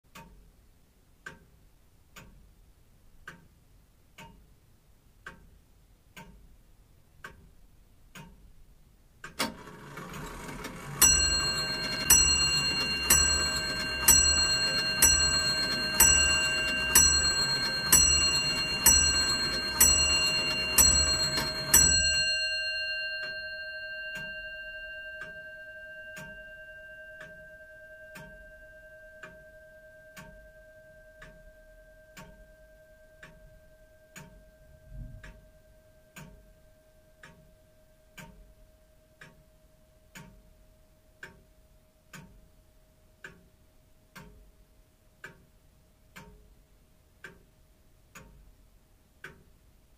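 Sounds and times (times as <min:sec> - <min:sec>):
clock ticking: 0:00.1 - 0:00.6, 0:01.2 - 0:02.5, 0:03.2 - 0:04.5, 0:05.2 - 0:08.5, 0:09.2 - 0:28.6, 0:30.1 - 0:30.6, 0:31.2 - 0:32.5, 0:33.1 - 0:33.5, 0:34.1 - 0:36.6, 0:37.2 - 0:40.6, 0:41.2 - 0:42.6, 0:43.2 - 0:44.6, 0:45.2 - 0:49.6
clock mechanism click: 0:09.2 - 0:22.3, 0:46.2 - 0:46.4
clock bell striking: 0:10.3 - 0:29.8.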